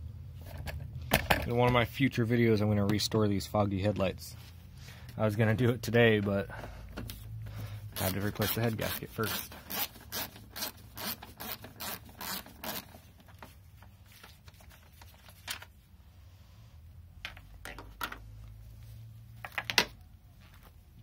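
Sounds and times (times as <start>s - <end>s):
ratchet wrench rasping: 8.0s - 13.1s.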